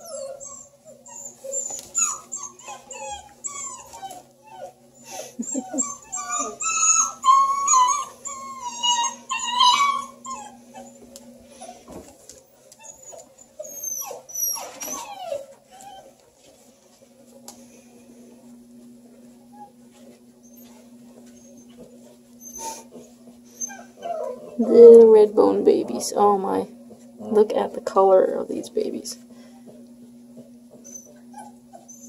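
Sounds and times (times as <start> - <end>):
puppies whining and yelping: 0.0 - 16.6, 19.4 - 25.1, 30.7 - 32.0.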